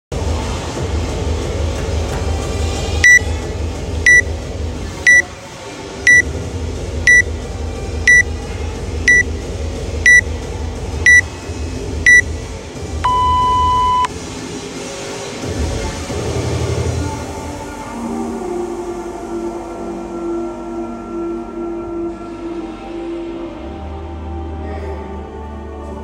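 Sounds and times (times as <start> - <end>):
countdown timer beeping: 9.1 - 9.3, 13.0 - 14.1.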